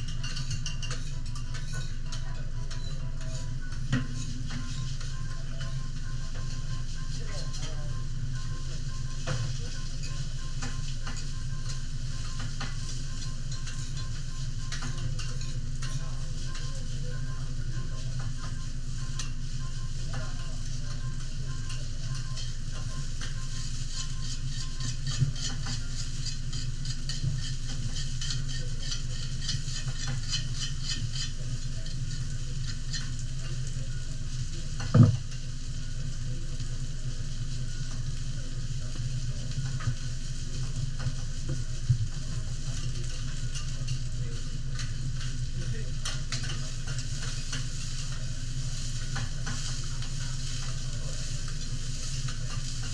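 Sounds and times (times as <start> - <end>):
vegetables sizzling on a griddle: 6.6 - 52.9
metal spatula scraping a plate: 23.9 - 32.3.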